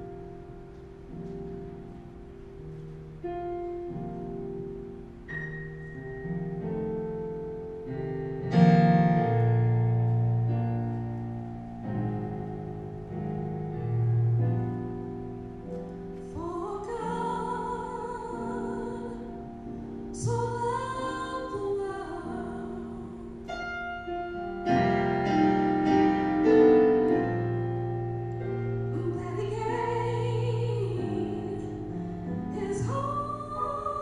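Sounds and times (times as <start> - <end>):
slow piano chords: 0.0 - 34.0
person singing with vibrato: 16.3 - 19.6, 20.2 - 23.6, 28.9 - 34.0.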